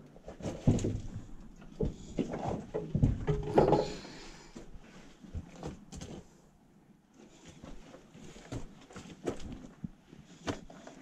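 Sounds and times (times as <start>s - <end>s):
footsteps crunching on loose rock: 7.6s - 10.8s.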